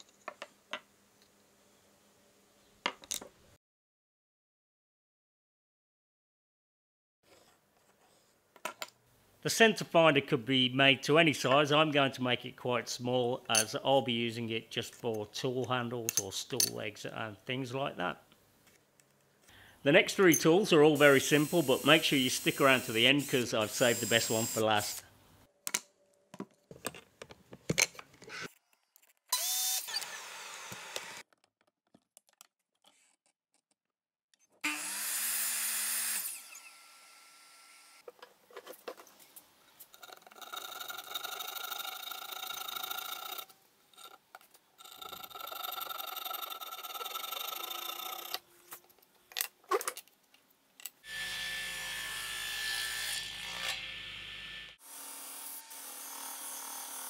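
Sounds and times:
power tool bursts: 0:29.4 - 0:31.2.

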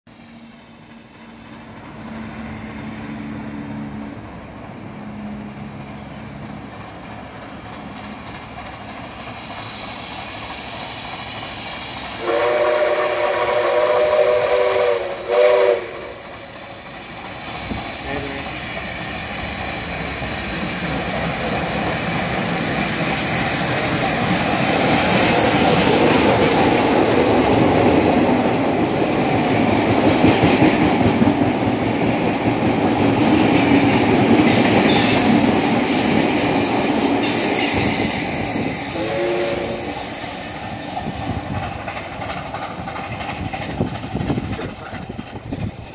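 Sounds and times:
train rumbling and clattering past: 0:00.1 - 0:45.9
steam locomotive chime whistle: 0:12.2 - 0:16.6, 0:33.9 - 0:41.4.

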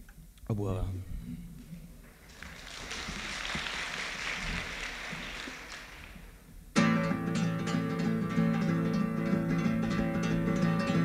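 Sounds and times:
audience applauding: 0:02.1 - 0:06.5
strummed acoustic guitar: 0:06.8 - 0:11.0.

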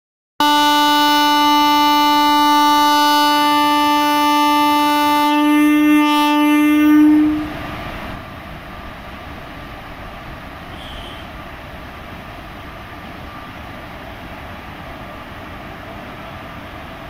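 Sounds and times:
locomotive horn blast: 0:00.4 - 0:07.6, 0:10.7 - 0:11.3.

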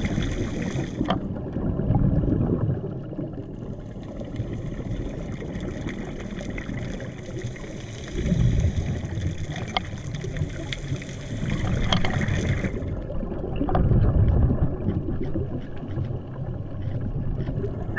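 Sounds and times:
muffled underwater rumble: 0:00.0 - 0:17.9
faint clicks: 0:09.2 - 0:12.6.

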